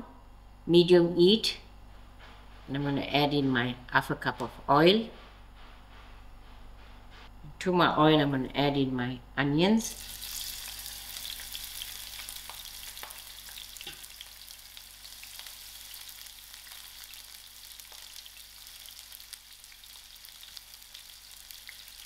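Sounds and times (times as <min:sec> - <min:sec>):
onions sizzling in oil: 0:10.0 - 0:22.0.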